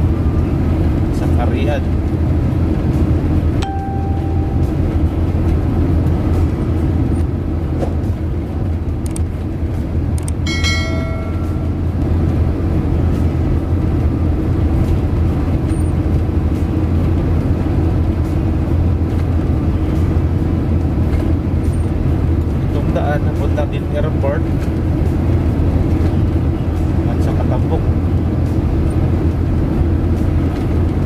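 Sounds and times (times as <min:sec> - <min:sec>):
vehicle driving on road: 0:00.0 - 0:31.0
chime-like tone: 0:03.6 - 0:05.0, 0:10.5 - 0:11.9.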